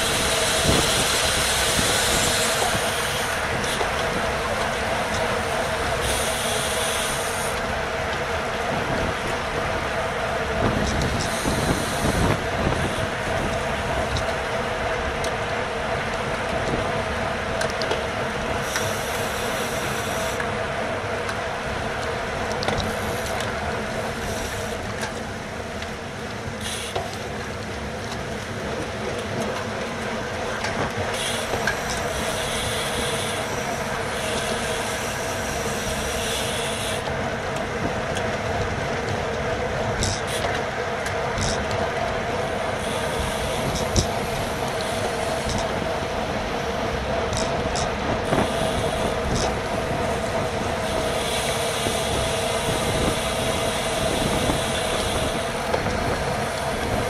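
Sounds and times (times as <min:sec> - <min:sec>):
wind and road noise: 0:00.0 - 0:57.0
bicycle clicks: 0:16.0 - 0:20.6, 0:22.0 - 0:45.8, 0:47.2 - 0:57.0.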